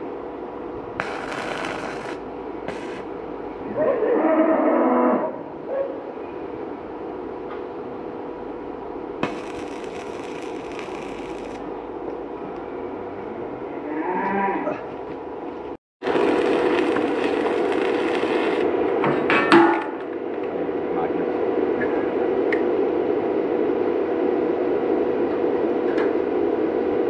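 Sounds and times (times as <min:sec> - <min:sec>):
steady hum: 0:00.0 - 0:04.0, 0:05.2 - 0:13.9, 0:15.2 - 0:27.0
welding arc crackling and hissing: 0:01.0 - 0:03.2, 0:09.2 - 0:11.8, 0:16.0 - 0:18.7
cow mooing: 0:13.8 - 0:14.8.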